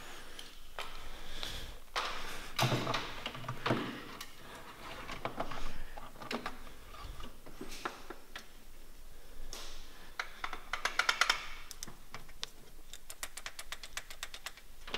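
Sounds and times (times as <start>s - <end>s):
sharp clicks and small knocks: 9.5s - 14.9s.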